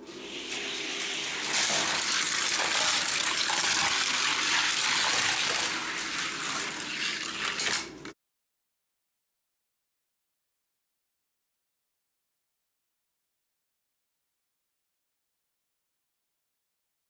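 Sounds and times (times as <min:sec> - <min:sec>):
toy cars rolling on track: 0:00.6 - 0:08.2.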